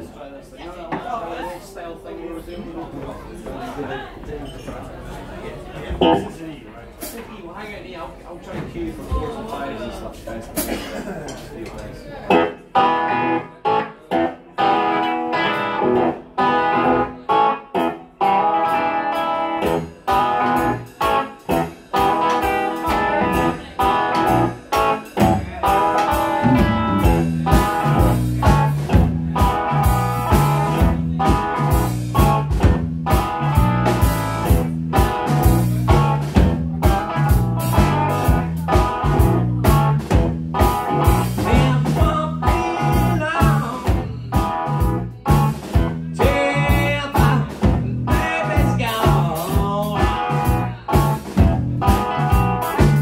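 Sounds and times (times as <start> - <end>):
bass guitar: 6.0 - 6.3, 12.3 - 53.0
electric guitar: 12.3 - 53.0
drum kit: 14.2 - 53.0.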